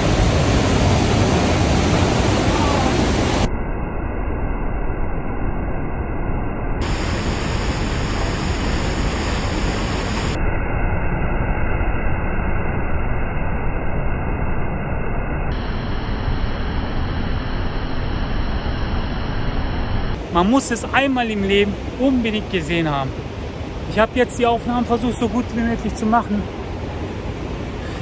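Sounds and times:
waterfall roaring: 0.0s - 3.5s, 6.8s - 10.4s, 19.8s - 28.0s.

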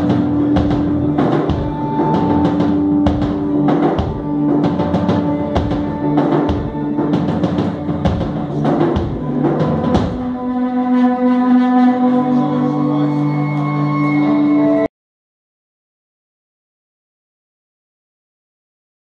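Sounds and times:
drum kit hits: 0.0s - 10.4s
distorted electric guitar: 0.0s - 10.6s.

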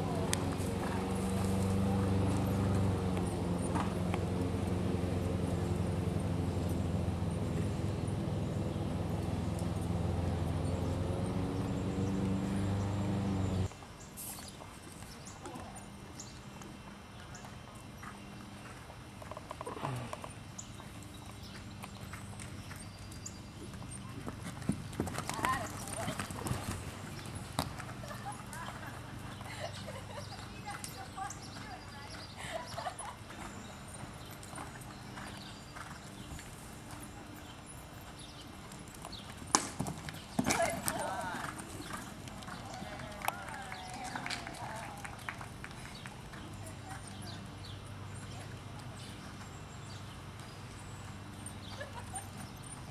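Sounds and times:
engine humming: 0.0s - 13.7s, 19.2s - 52.9s
horse hoofbeats on sand: 20.8s - 52.9s.

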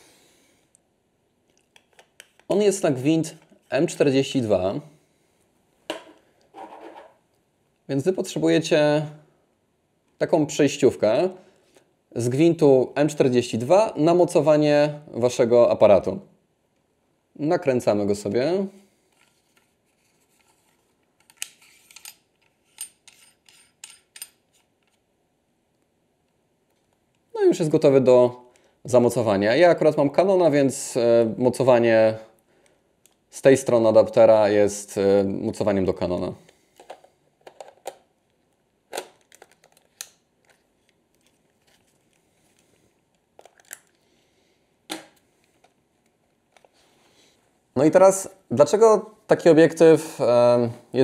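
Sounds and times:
clicks and knocks of lens parts: 1.4s - 2.5s, 19.1s - 25.1s, 36.5s - 44.0s.

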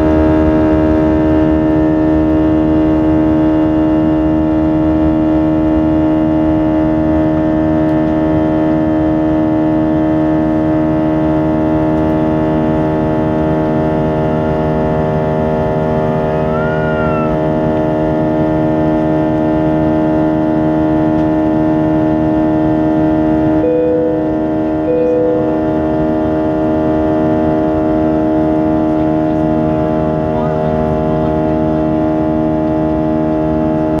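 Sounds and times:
jet engine drone: 0.0s - 34.0s
short beeps: 23.6s - 25.9s.

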